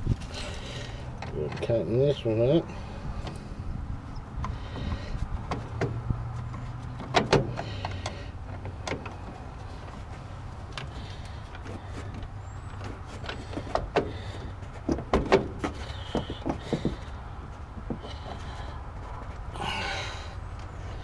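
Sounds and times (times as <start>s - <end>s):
clicks and metal knocks: 1.1s - 2.2s, 4.4s - 19.4s.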